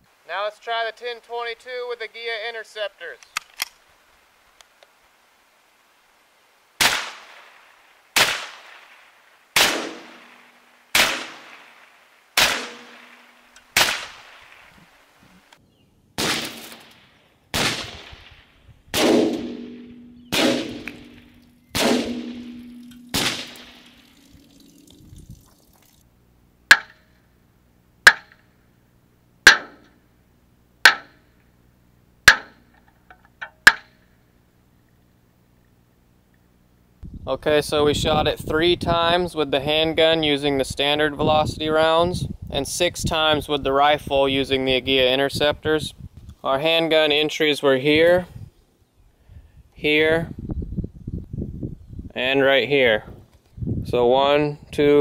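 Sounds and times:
rifle shots hitting steel: 9.6s - 11.8s, 12.4s - 14.6s, 16.2s - 18.4s, 19.0s - 24.8s, 29.5s - 29.9s
metallic ping: 12.6s - 13.7s, 19.2s - 24.9s.

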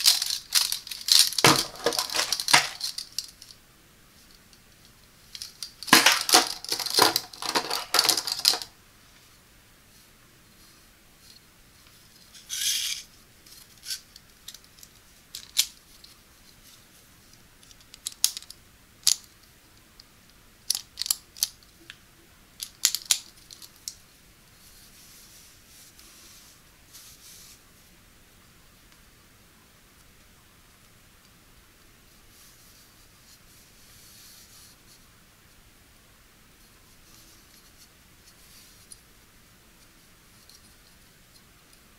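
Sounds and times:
soft rubbing: 24.5s - 28.0s, 32.0s - 35.1s.

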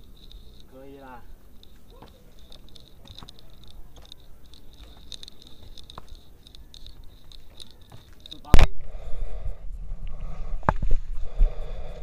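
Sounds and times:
footsteps on dry dirt and leaves: 0.0s - 8.6s.

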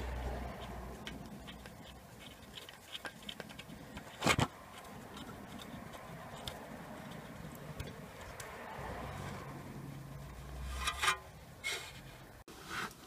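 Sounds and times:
metallic ticks and scrapes of bolt: 10.7s - 12.0s.

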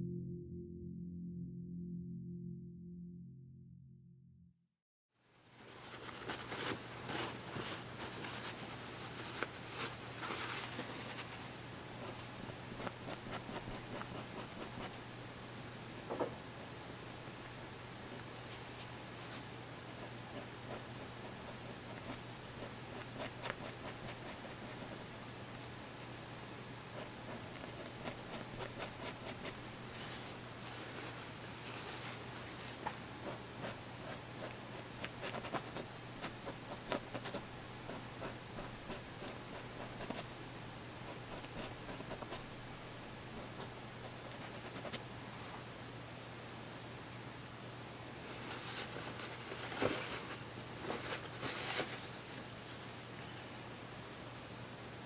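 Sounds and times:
low steady hum: 0.0s - 4.6s, 5.2s - 55.0s
low hum: 0.0s - 4.7s
scratchy rubbing on canvas: 12.8s - 14.9s, 20.3s - 25.0s, 27.0s - 30.3s, 33.2s - 40.3s.

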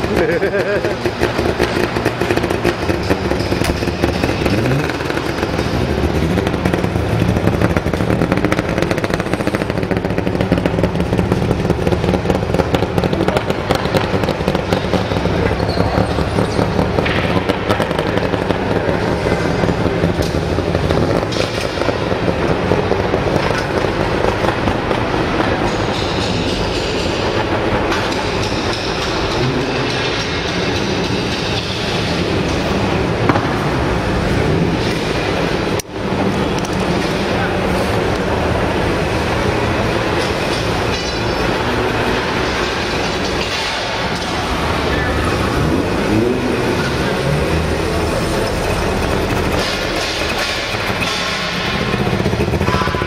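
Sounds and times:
two-stroke engine revving: 0.0s - 53.0s.

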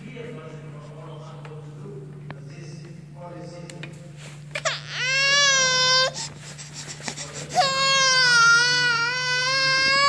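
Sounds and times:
infant squealing: 4.6s - 10.0s.

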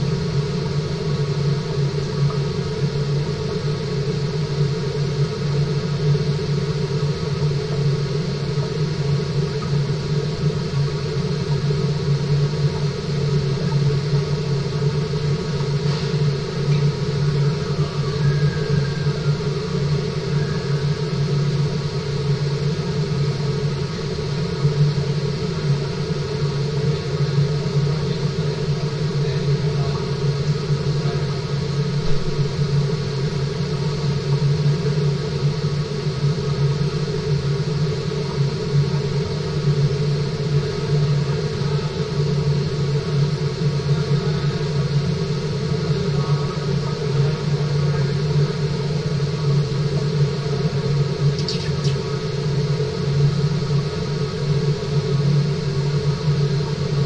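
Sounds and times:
water circulation rumble and hum: 0.0s - 57.0s.

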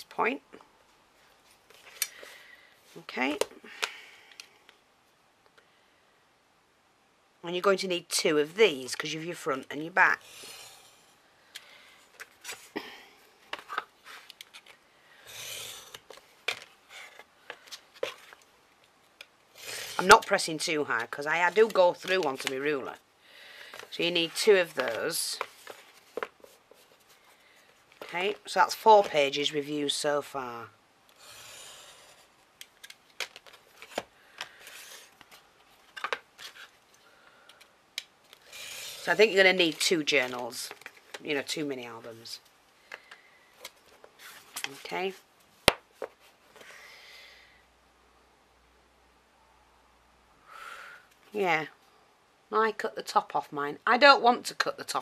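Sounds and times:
scratching strokes: 10.2s - 11.2s, 31.2s - 32.3s, 38.4s - 39.7s.

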